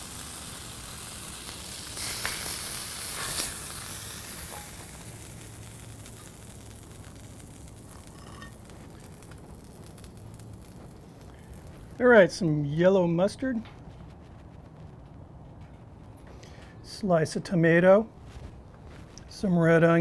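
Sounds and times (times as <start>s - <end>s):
beef patties sizzling on griddle: 0.0s - 13.5s
spatula scraping griddle: 2.0s - 4.9s, 8.0s - 8.6s.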